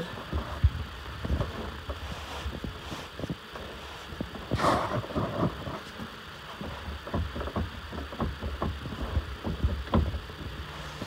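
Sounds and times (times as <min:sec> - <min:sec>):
steering helm knocks and thumps: 0:04.2 - 0:11.0.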